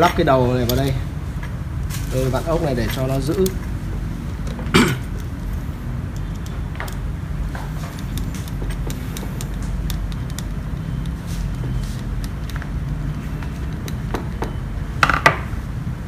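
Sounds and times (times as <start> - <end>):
steady low rumble: 0.0 - 16.0
screwdriver clicking and scraping: 4.4 - 14.6.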